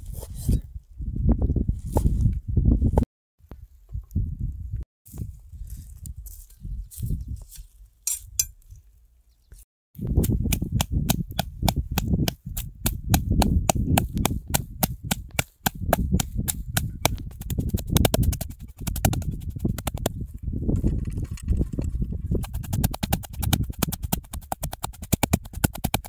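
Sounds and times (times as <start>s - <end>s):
knife chopping on wooden board: 13.1s - 20.1s, 22.4s - 26.0s.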